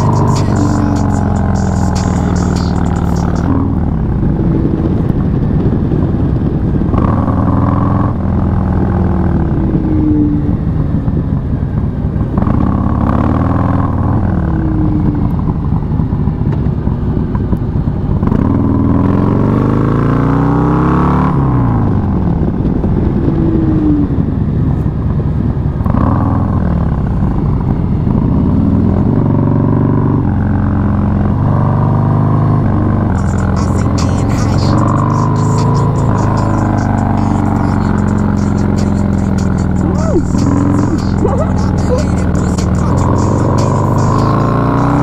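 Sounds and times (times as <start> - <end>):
motorcycle engine revving: 0.0 - 45.0.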